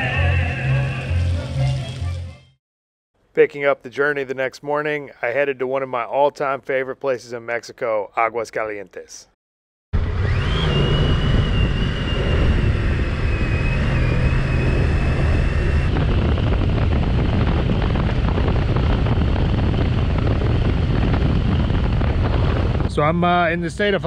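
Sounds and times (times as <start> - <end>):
steady high whine: 0.0 - 2.4, 10.0 - 23.7
wind and road noise: 10.0 - 24.0.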